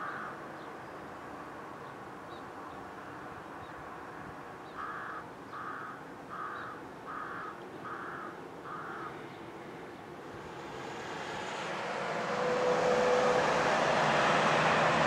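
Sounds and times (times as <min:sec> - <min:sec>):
crow cawing: 0:04.8 - 0:09.2.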